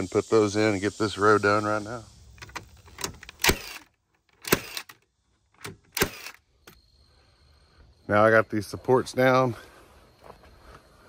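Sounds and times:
nail gun shots into wood: 3.3s - 3.8s, 4.4s - 4.9s, 5.6s - 6.4s.

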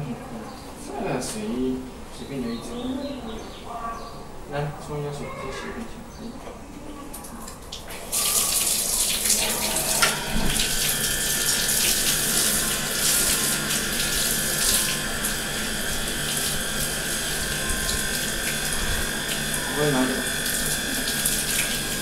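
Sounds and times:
shower water running and splashing: 7.4s - 22.0s.

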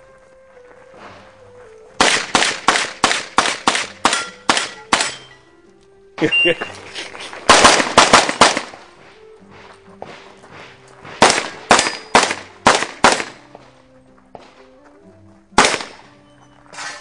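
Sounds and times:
gunshots with echo: 2.0s - 5.2s, 7.4s - 8.9s, 11.0s - 13.5s, 15.6s - 16.1s
quiet tune: 2.8s - 17.0s.

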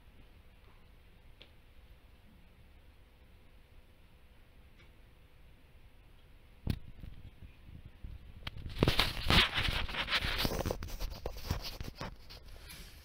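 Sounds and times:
rustling and scraping: 6.7s - 13.0s.

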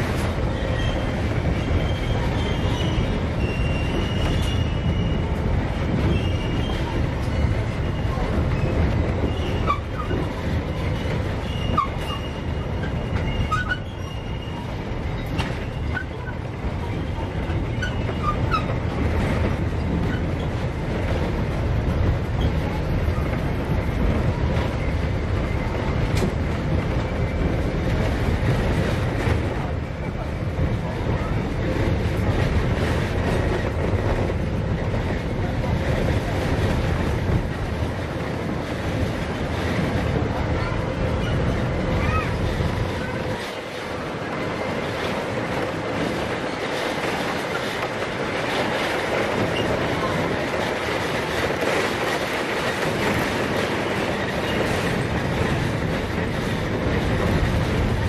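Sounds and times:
train wheels rumbling: 0.0s - 58.0s
wheel squeals: 0.5s - 5.3s, 6.1s - 16.3s, 17.0s - 18.8s.

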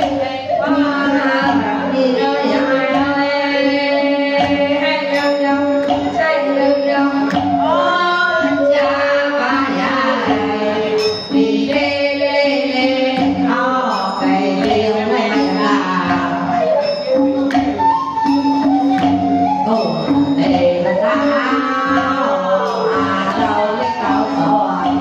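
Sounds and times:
traditional ensemble playing: 15.1s - 25.0s.

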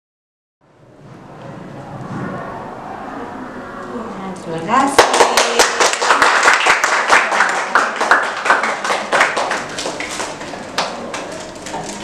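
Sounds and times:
hand clapping: 5.0s - 11.4s.

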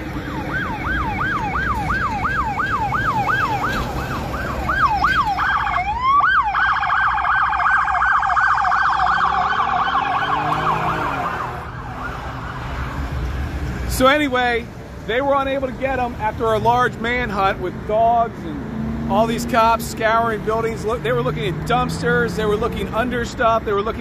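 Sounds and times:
emergency siren yelping: 0.0s - 13.1s
low traffic rumble: 0.0s - 24.0s.

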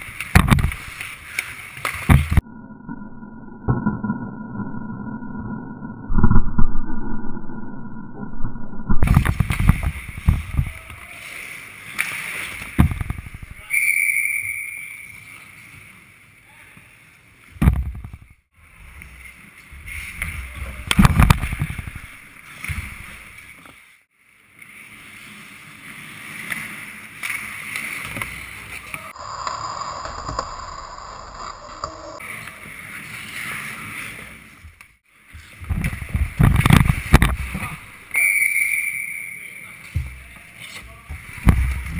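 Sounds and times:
skates scraping ice: 0.0s - 2.4s, 9.1s - 13.7s, 18.8s - 38.1s
loud thumps: 0.3s - 0.8s, 2.0s - 2.4s, 12.7s - 13.7s, 17.6s - 18.3s.

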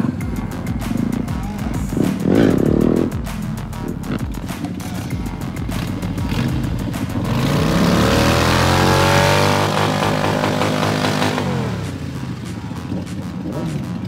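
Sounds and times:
background music: 0.0s - 14.0s
motorcycle engine revving: 0.0s - 14.0s.

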